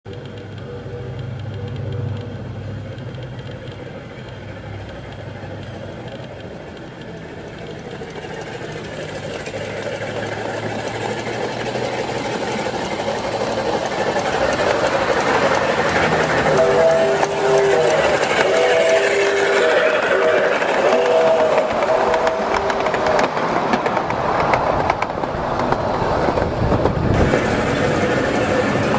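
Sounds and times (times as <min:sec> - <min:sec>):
model train wheels on rails: 0:00.1 - 0:28.9.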